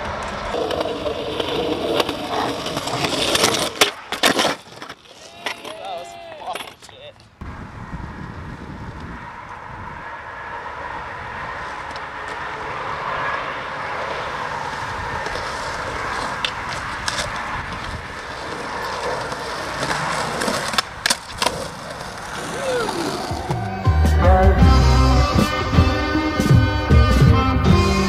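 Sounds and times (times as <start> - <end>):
skateboard wheels rolling on concrete: 0.0 - 28.0
sharp skateboard clacks: 15.2 - 23.8.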